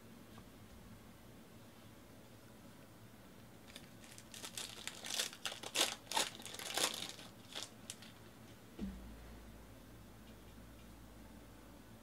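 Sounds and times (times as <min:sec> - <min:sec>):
foil wrapper crinkling and tearing: 0:03.7 - 0:08.2.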